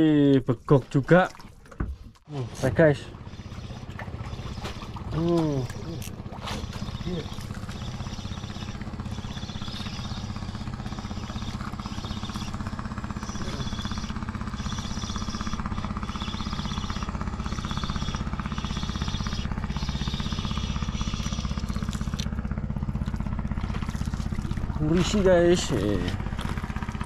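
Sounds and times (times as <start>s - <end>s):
engine running steadily: 1.4s - 27.0s
fishing reel whirring: 2.6s - 27.0s.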